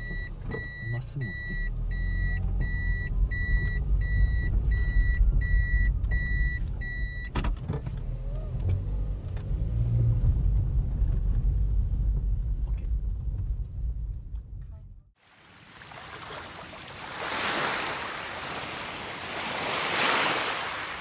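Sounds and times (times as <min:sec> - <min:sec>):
car warning chime beeping: 0:00.0 - 0:07.4
car engine rumble: 0:00.0 - 0:15.2.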